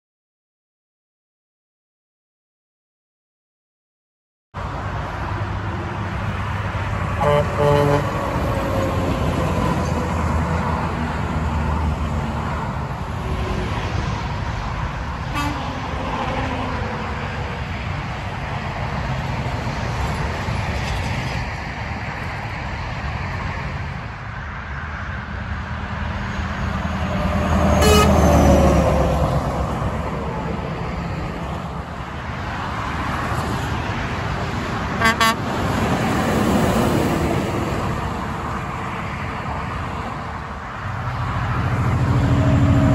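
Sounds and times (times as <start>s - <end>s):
diesel engine: 4.6s - 42.9s
road traffic: 4.6s - 42.9s
vehicle passing close by: 4.6s - 42.9s
truck air horn blasts: 7.2s - 8.4s, 15.3s - 16.0s, 27.6s - 28.6s, 35.0s - 35.6s.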